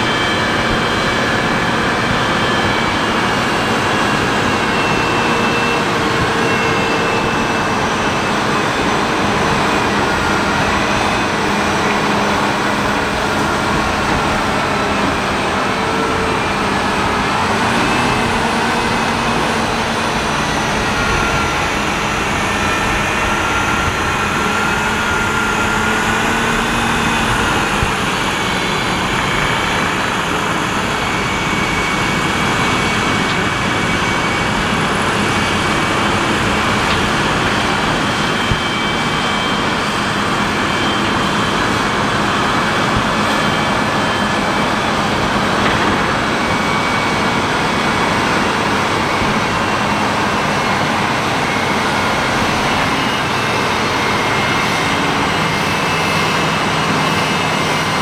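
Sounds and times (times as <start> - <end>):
diesel engines droning: 0.0 - 58.0.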